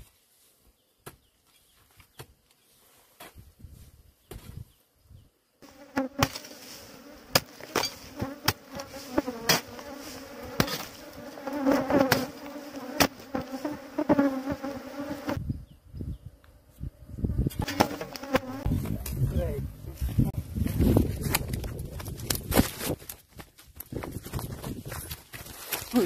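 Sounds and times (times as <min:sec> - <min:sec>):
swarm of insects buzzing: 0:05.6 - 0:15.4, 0:16.7 - 0:18.8.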